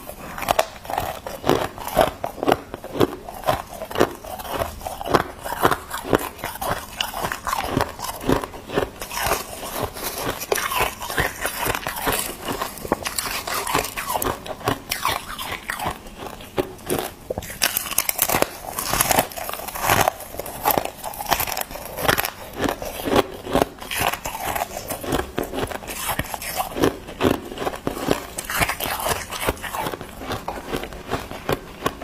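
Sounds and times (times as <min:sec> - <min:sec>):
ice crunching: 0:00.5 - 0:15.3.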